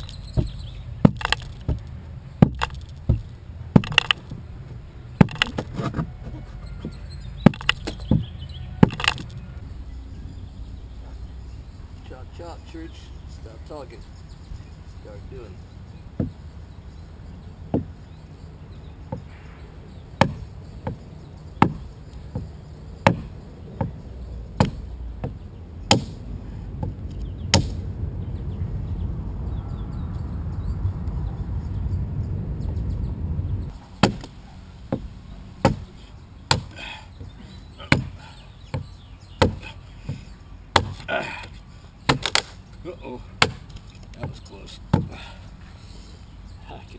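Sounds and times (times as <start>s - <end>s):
adze chopping into log: 0.0s - 4.3s, 5.2s - 6.0s, 7.4s - 9.4s, 20.2s - 21.0s, 21.6s - 24.0s, 24.6s - 26.2s, 26.8s - 27.8s, 34.0s - 36.8s, 37.8s - 41.2s, 42.1s - 42.6s, 43.4s - 45.2s
low rumbling noise: 0.0s - 43.8s.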